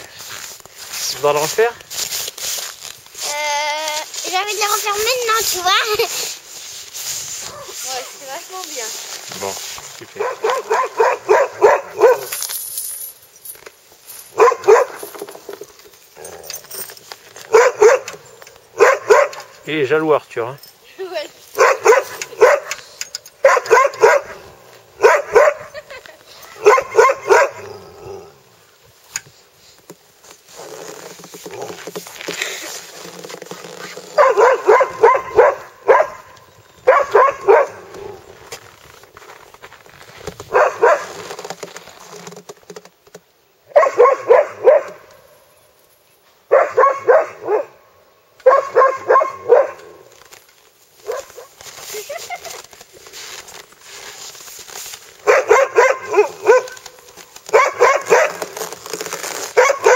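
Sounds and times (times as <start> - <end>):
dogs barking: 10.1 - 12.3, 14.3 - 15.1, 17.5 - 19.5, 21.6 - 22.8, 23.4 - 24.4, 25.0 - 25.9, 26.6 - 27.7, 34.2 - 37.9, 40.5 - 41.1, 43.7 - 45.1, 46.5 - 47.8, 48.4 - 50.0, 51.0 - 51.5, 55.2 - 58.4, 59.6 - 59.9.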